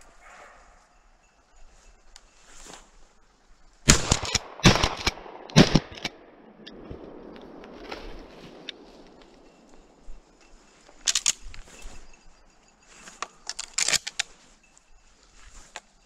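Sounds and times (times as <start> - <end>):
shotgun shots with echo: 3.9 - 9.1.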